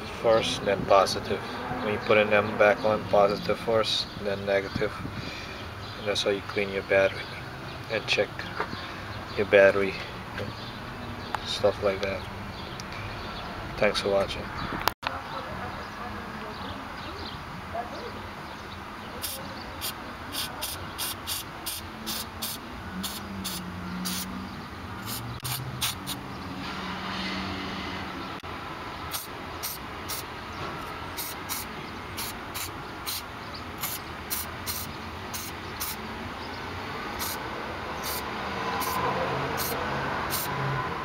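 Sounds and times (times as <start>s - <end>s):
aerosol can spraying: 19.2s - 24.3s, 25.0s - 26.2s, 29.1s - 30.3s, 31.2s - 36.0s, 37.2s - 37.4s, 38.0s - 38.2s, 38.8s - 39.0s, 39.6s - 40.5s.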